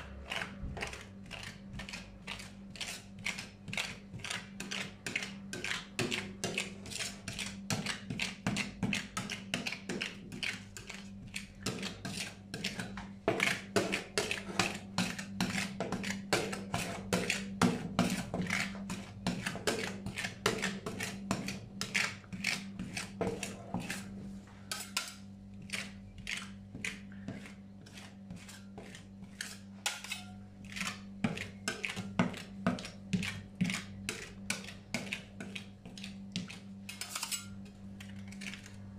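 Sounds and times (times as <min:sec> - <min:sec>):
low steady hum: 0:00.0 - 0:38.9
metal spatulas scraping steel plate: 0:24.7 - 0:25.2, 0:27.8 - 0:30.9, 0:36.9 - 0:37.6.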